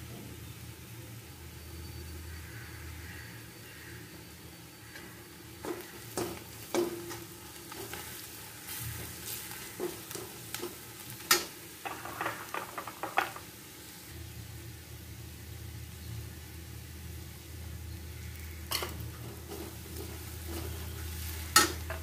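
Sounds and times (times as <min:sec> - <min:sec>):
low sizzle of frying: 0:00.0 - 0:22.0
spatula scraping and knocking pan: 0:05.6 - 0:08.1, 0:08.7 - 0:13.4, 0:18.7 - 0:22.0.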